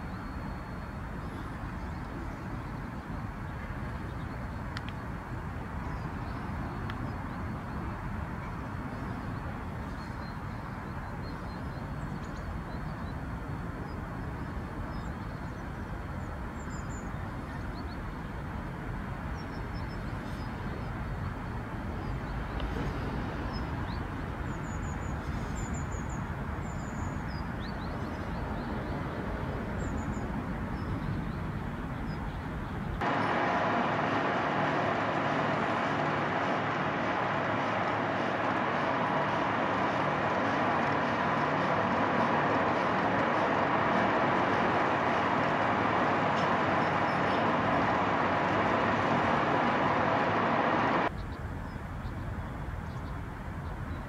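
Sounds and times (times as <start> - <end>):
small birds chirping: 0.0 - 18.5, 19.1 - 33.2, 51.0 - 54.0
heavy machinery engine rumble: 0.0 - 54.0
harsh engine noise: 31.5 - 51.2.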